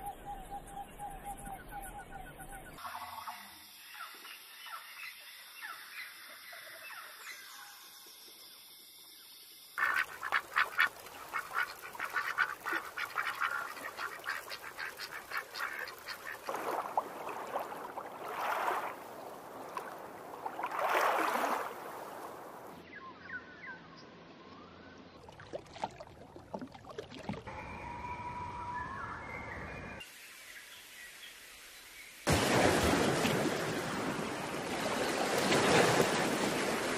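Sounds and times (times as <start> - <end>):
faint high bird chirps: 0.0 - 8.2, 27.5 - 31.4
ducks quacking: 9.8 - 16.6.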